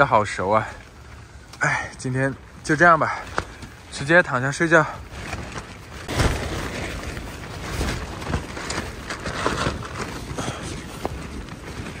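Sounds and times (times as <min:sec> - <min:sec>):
tent fabric flapping: 0:00.0 - 0:12.0.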